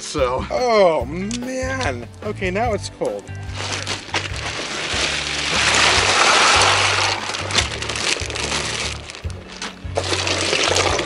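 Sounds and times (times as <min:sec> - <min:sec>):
background music with bass: 0:00.0 - 0:11.0
ice cubes clacking: 0:03.5 - 0:11.0
ice cubes pouring into water: 0:03.5 - 0:11.0.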